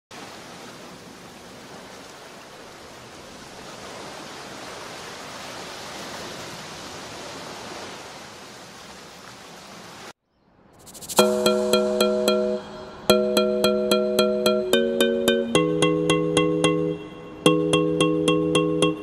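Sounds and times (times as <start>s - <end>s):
waves breaking on beach: 0.1s - 10.2s.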